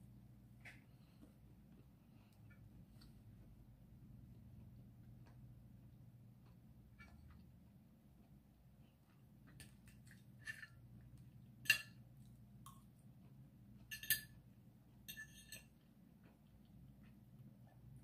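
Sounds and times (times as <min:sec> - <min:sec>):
cutlery clinking on ceramic plate: 0:11.6 - 0:12.0, 0:13.8 - 0:14.4, 0:15.0 - 0:15.8.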